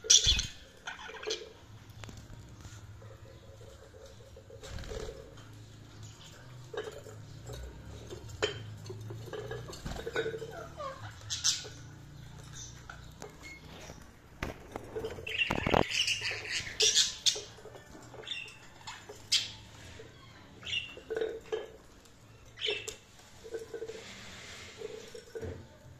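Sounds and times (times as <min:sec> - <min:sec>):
budgerigars chirping: 0:00.0 - 0:01.5, 0:10.7 - 0:12.8, 0:15.2 - 0:17.6.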